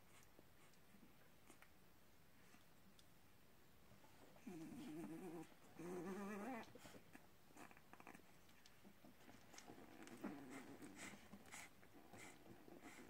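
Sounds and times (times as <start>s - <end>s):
faint rustling: 3.8s - 13.0s
puppy whining: 4.4s - 8.3s.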